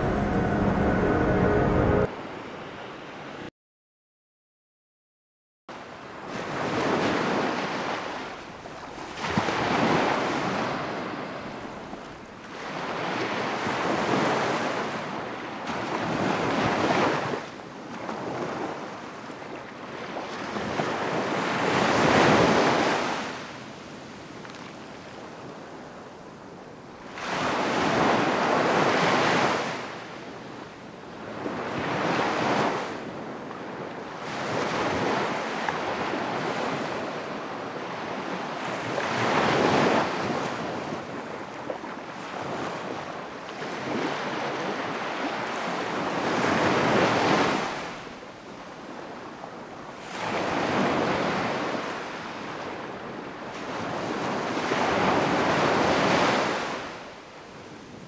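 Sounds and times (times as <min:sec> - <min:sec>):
ocean waves breaking: 0:00.0 - 0:03.3.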